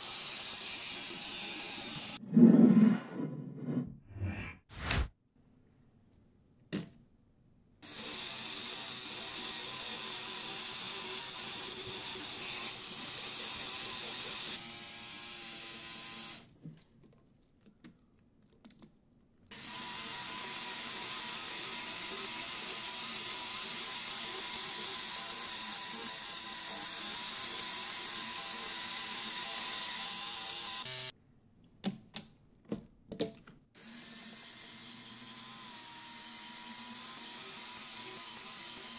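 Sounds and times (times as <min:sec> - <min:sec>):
toy motors whirring: 0:07.8 - 0:16.5, 0:19.5 - 0:31.1, 0:33.8 - 0:38.9.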